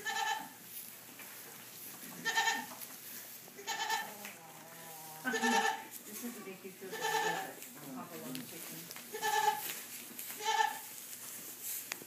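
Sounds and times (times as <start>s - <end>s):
goat kids bleating: 0.0s - 0.6s, 2.1s - 2.8s, 3.6s - 7.6s, 9.1s - 9.7s, 10.3s - 10.9s.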